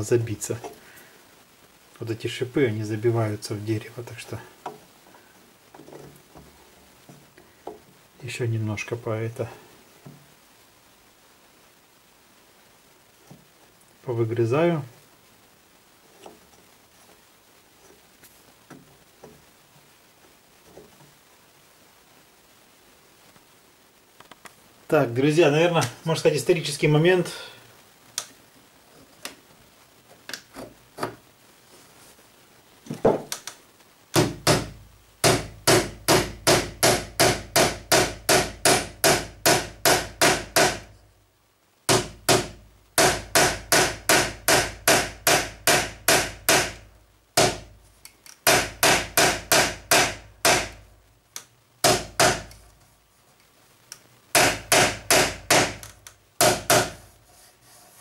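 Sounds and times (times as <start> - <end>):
small hammer tapping metal: 34.2 - 40.9.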